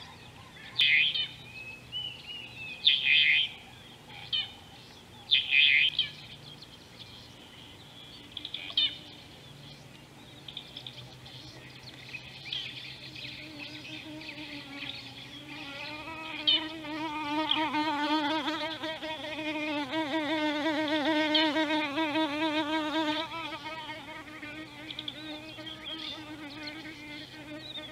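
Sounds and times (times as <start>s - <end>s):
birds calling and chirping: 0.0s - 18.7s, 22.7s - 27.9s
fly buzzing: 13.0s - 27.9s.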